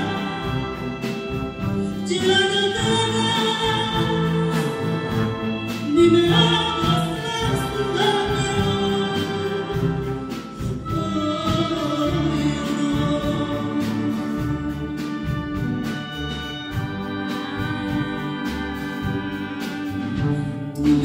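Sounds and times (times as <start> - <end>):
big band playing: 0.0 - 21.0
woman singing into a microphone: 1.9 - 5.2, 5.9 - 14.6.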